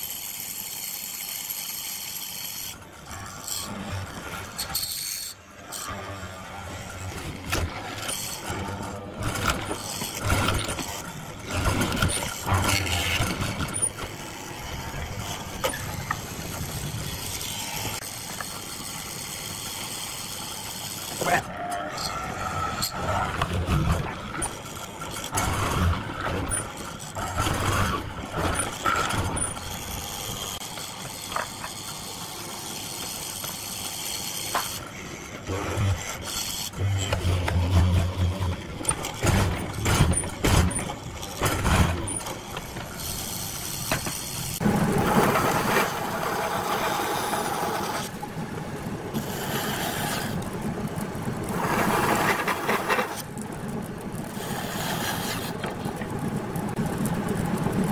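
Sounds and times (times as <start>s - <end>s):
bandsaw cutting: 1.5s - 44.6s.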